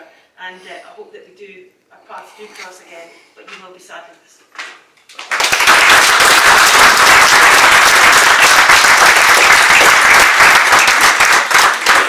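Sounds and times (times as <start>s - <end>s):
crowd applauding: 5.2s - 12.0s.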